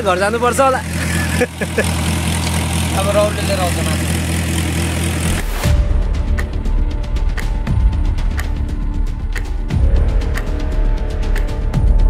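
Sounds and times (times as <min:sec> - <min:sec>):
low engine drone: 0:00.0 - 0:12.0
music: 0:05.4 - 0:12.0.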